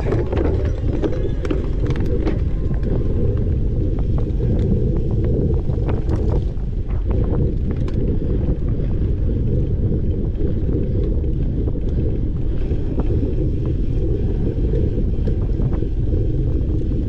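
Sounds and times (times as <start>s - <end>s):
faint clicks and rattles: 0.0s - 9.2s
wind rumble on microphone: 0.0s - 17.0s.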